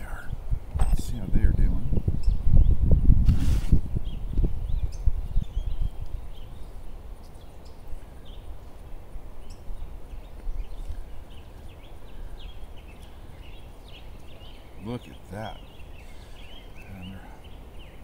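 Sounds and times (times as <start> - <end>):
faint bird chirps: 4.0 - 18.0.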